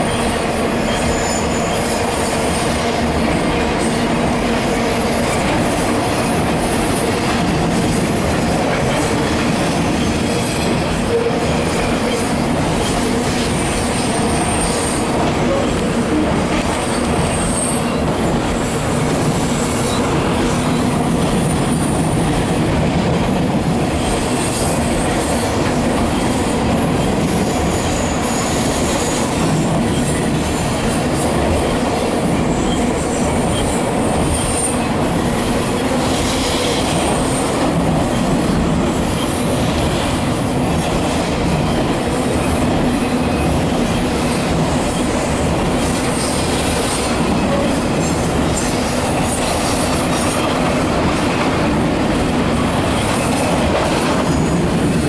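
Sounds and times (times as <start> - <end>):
freight train rumbling on rails: 0.0 - 55.0
high wheel squeals: 0.9 - 2.4, 12.8 - 20.1, 32.4 - 37.5.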